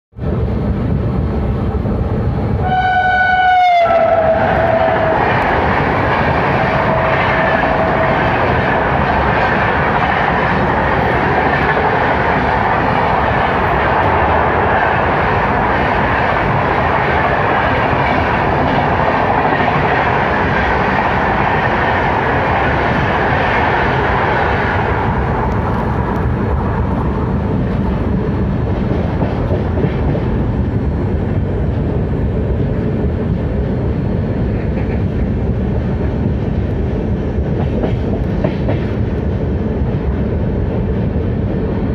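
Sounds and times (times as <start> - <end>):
second train running alongside: 0.1 - 41.9
train wheels rumbling on rail: 0.1 - 41.9
train horn: 2.6 - 5.4.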